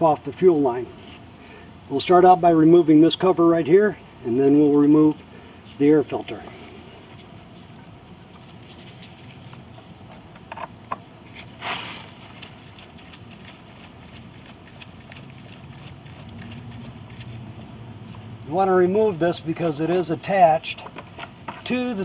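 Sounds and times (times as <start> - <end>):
scraping rustle: 11.3 - 14.9.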